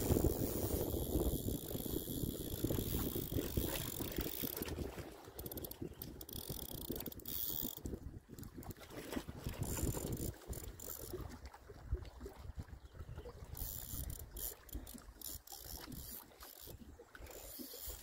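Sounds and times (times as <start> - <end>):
fishing reel ratcheting: 0.0 - 8.0, 9.4 - 11.2, 13.5 - 18.0
wind rumble on microphone: 0.0 - 14.4.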